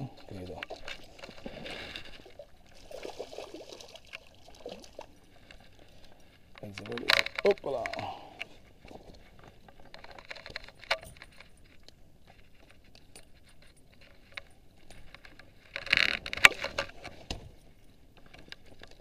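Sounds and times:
fishing tackle clicks and rattles: 0.1s - 2.3s, 6.5s - 8.6s, 9.4s - 17.3s.

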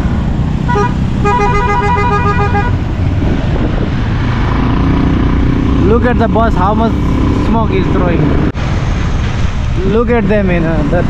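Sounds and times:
motorcycle engine: 0.0s - 8.5s
wind noise: 0.0s - 11.0s
vehicle horn beeping: 0.7s - 2.8s.

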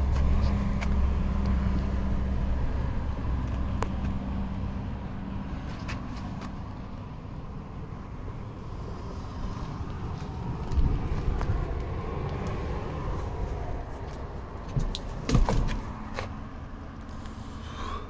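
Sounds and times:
low outdoor rumble: 0.0s - 18.0s
sharp clicks and knocks: 14.6s - 16.3s.

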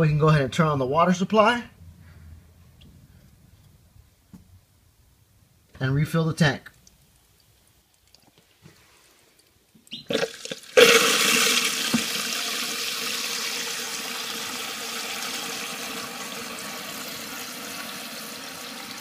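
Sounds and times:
toilet tank refilling: 10.0s - 19.0s
water rushing in with hiss: 10.1s - 19.0s.

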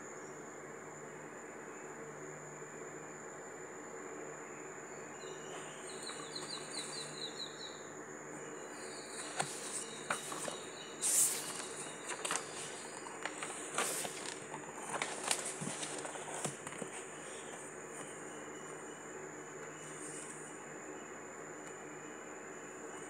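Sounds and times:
bird chirping: 4.9s - 13.6s.

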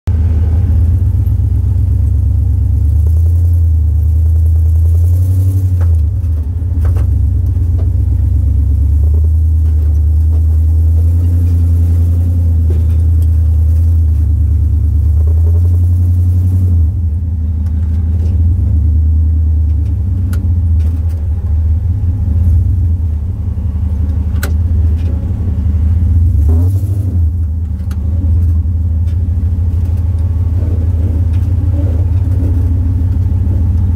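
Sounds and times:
engine deep rumble: 0.0s - 33.9s
sharp clicks and knocks: 24.0s - 25.2s.

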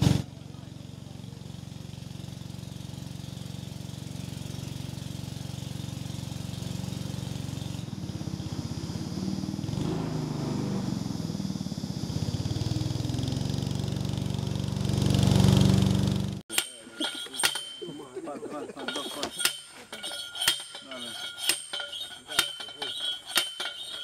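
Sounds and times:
small boat motor running: 0.0s - 16.4s.

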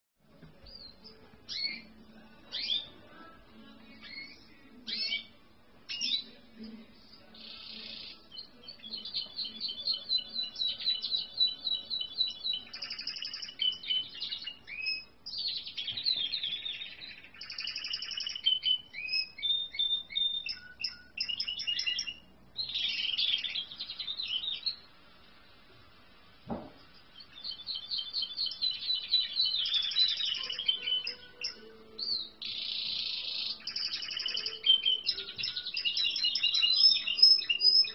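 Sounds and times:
canary singing trills: 0.6s - 25.0s, 26.8s - 37.9s
soft knock: 26.5s - 26.9s.

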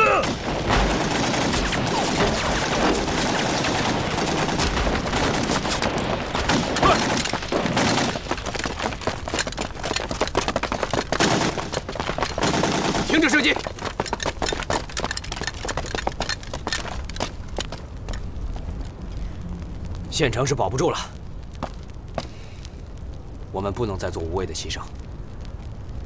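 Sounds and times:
rifle and machine-gun fire: 0.0s - 14.0s.

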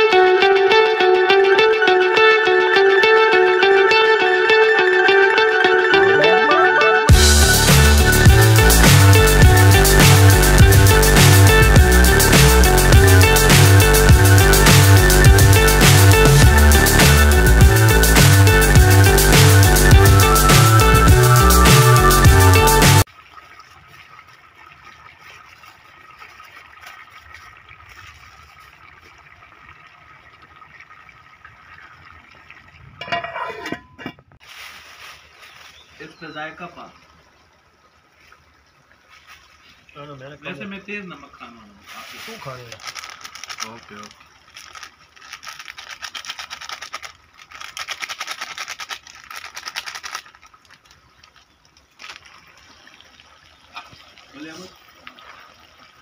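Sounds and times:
faint hiss: 39.1s - 42.8s.

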